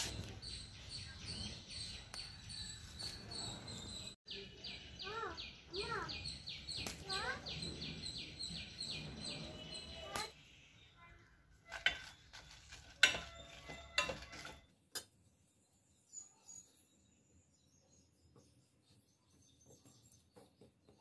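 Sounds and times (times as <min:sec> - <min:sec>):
small birds chirping: 0:00.0 - 0:14.6, 0:15.4 - 0:21.0
kitchen utensils knocking and clinking: 0:11.7 - 0:14.7.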